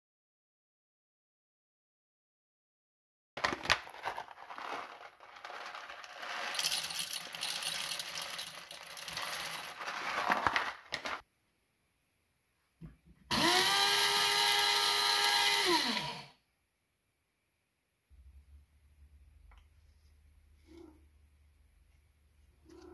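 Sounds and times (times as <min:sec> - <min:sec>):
coffee beans rattling into metal bowl: 0:03.4 - 0:11.2
grinder motor whine: 0:13.3 - 0:16.3.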